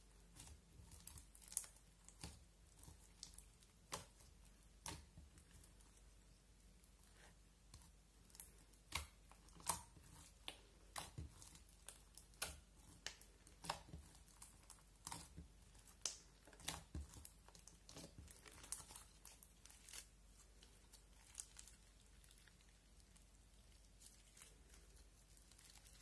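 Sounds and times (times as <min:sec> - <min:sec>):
slime popping and crackling: 0:08.2 - 0:26.0.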